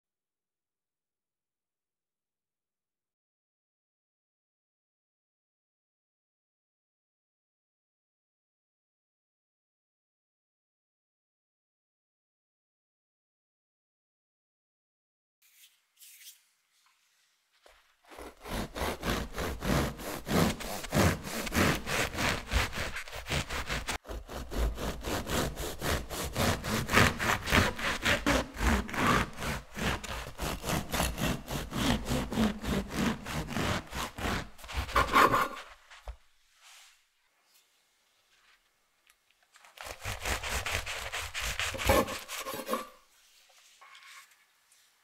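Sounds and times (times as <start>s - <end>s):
bread knife sawing crusty loaf: 18.0s - 35.8s, 39.8s - 43.0s.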